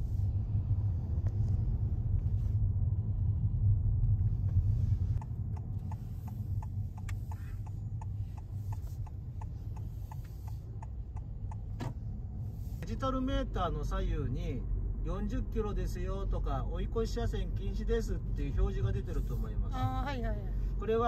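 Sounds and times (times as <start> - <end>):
low car cabin rumble: 0.0 - 21.0
regular ticking: 5.2 - 11.8.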